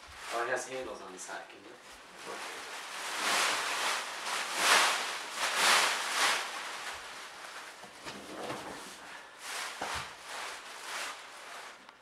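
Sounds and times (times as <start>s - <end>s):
plastic wrapping crinkling: 0.0s - 12.0s
mattress rustling and swishing: 1.8s - 11.9s.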